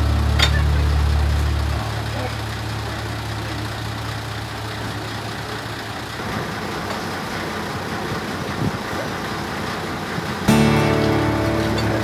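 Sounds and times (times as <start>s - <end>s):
heavy vehicle engine idling: 0.0s - 12.0s.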